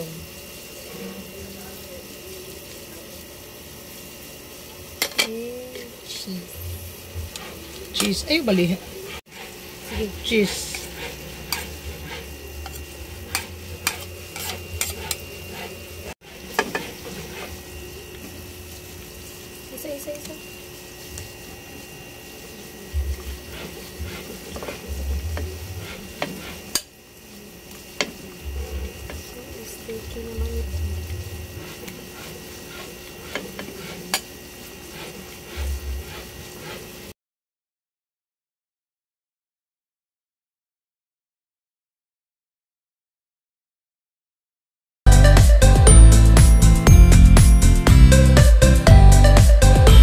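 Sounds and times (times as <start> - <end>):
cream sauce bubbling and sizzling: 16.2 - 37.1.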